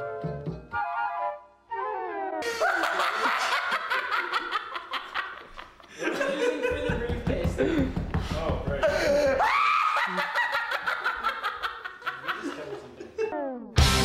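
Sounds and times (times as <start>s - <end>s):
man laughing hard: 2.4s - 7.9s, 8.8s - 13.3s.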